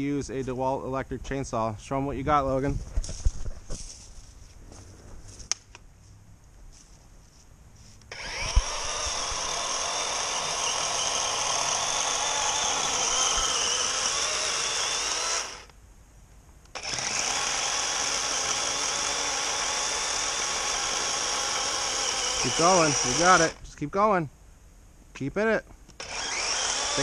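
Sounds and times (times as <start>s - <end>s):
electric chainsaw cutting log: 8.1s - 15.8s, 16.7s - 23.7s, 25.9s - 27.0s.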